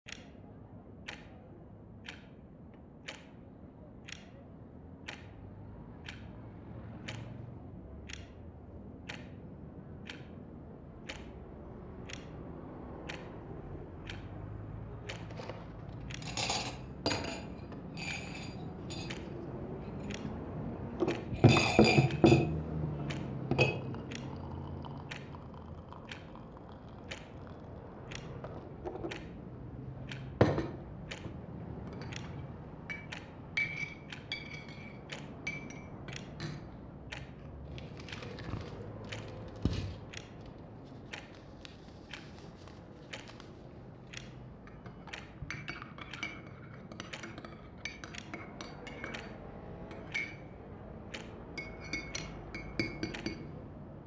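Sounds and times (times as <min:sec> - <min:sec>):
clock ticking: 0:00.1 - 0:17.4, 0:19.0 - 0:21.4, 0:22.5 - 0:54.0
distant street traffic hum: 0:00.1 - 0:54.0
china and cutlery clinking: 0:16.1 - 0:20.0, 0:21.0 - 0:22.6, 0:32.9 - 0:36.6, 0:51.6 - 0:53.5.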